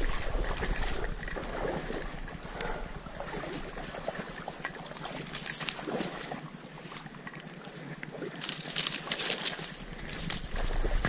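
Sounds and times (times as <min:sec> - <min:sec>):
water sloshing underfoot: 0:00.0 - 0:11.0
dry corn stalks rustling: 0:05.1 - 0:06.2, 0:08.3 - 0:11.0.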